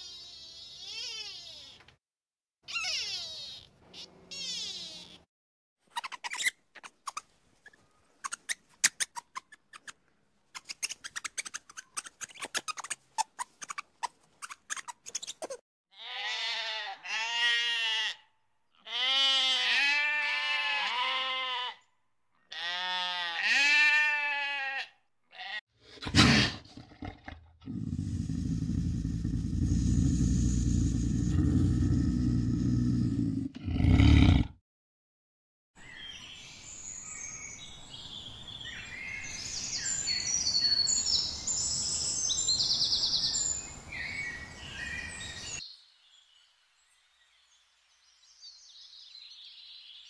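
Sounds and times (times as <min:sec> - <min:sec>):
animal bleating: 0:15.9 - 0:21.8, 0:22.5 - 0:25.6.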